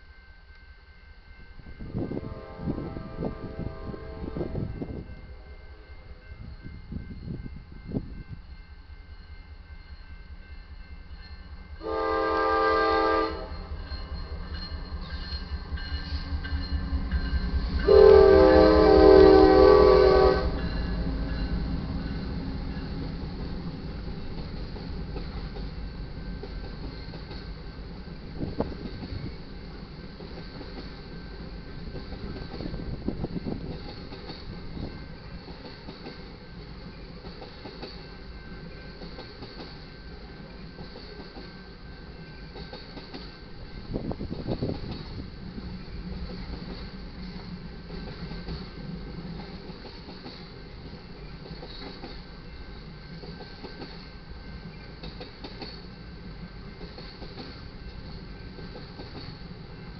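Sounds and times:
train rumble: 0.0 - 59.9
locomotive horn blast: 2.2 - 4.8, 11.8 - 13.7, 17.8 - 20.7
faint clicks over rail joints: 55.0 - 55.9.

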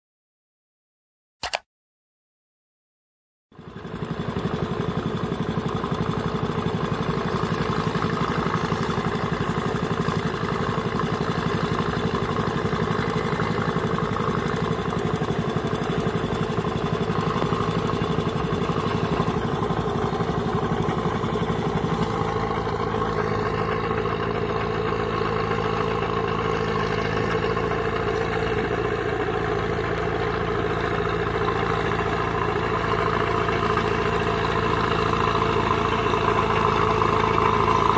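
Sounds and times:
tractor engine running: 3.6 - 37.9.

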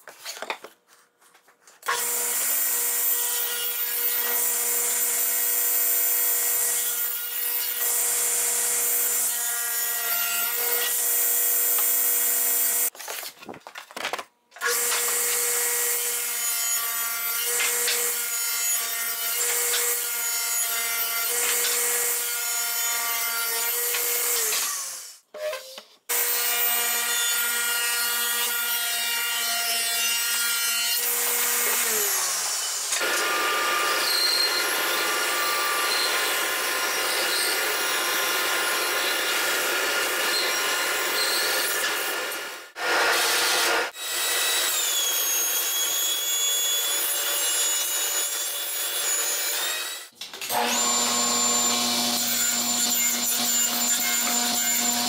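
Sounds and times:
table saw cutting plywood: 1.9 - 12.9, 14.6 - 25.2, 26.1 - 55.0
band saw cutting wood: 14.6 - 25.2, 26.1 - 55.0.

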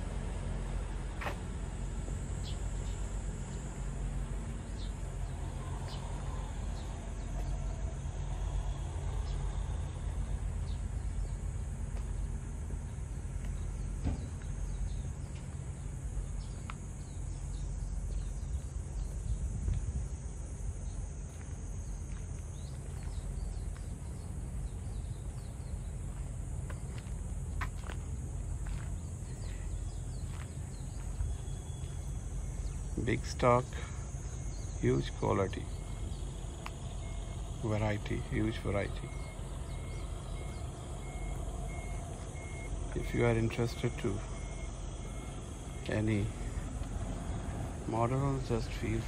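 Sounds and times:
high insect buzz: 1.2 - 49.0
low rumble: 1.6 - 21.2
bird chirps: 29.0 - 46.7.

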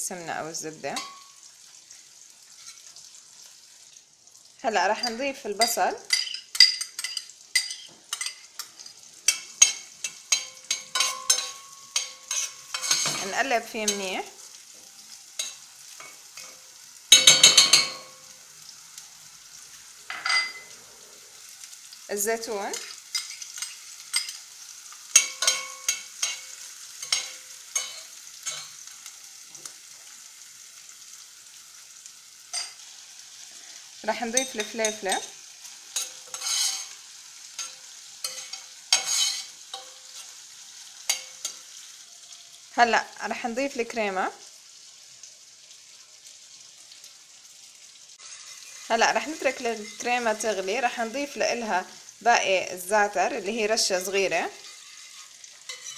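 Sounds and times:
soft frying sizzle: 0.0 - 55.9
metal spoon scraping and clinking: 1.0 - 1.3, 2.6 - 2.9, 5.0 - 14.1, 15.4 - 18.2, 20.1 - 20.8, 22.7 - 24.5, 25.1 - 28.9, 32.5 - 32.8, 34.4 - 37.0, 37.6 - 40.4, 41.1 - 41.7, 49.5 - 50.2, 54.6 - 55.9
metal spoon knocking saucepan: 17.1 - 18.2
steel pan ringing: 17.1 - 18.2.

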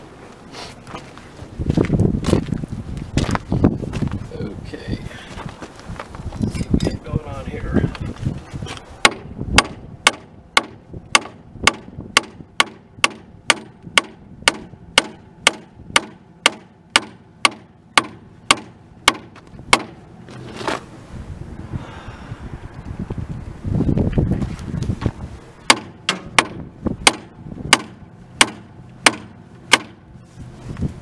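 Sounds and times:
hammer striking metal: 9.0 - 20.0, 25.7 - 30.0.

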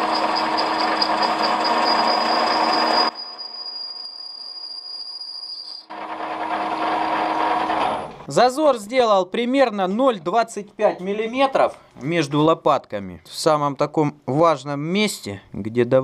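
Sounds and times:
metal lathe running: 0.0 - 3.4, 5.9 - 8.2.

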